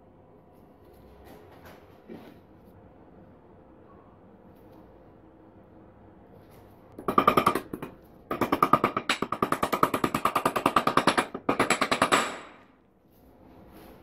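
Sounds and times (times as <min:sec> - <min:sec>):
hammer tapping on metal: 0:07.0 - 0:12.7.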